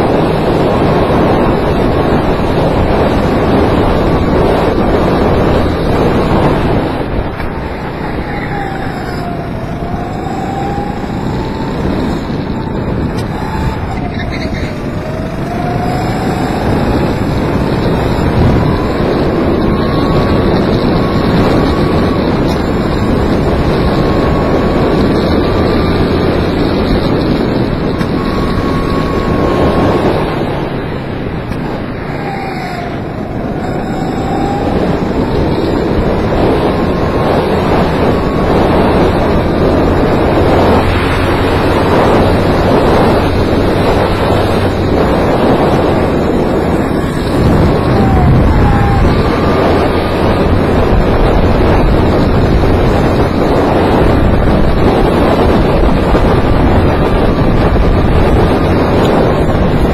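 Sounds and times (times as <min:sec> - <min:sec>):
go-kart engine running hard: 0:00.0 - 0:59.9
wind noise on microphone: 0:00.0 - 0:59.9.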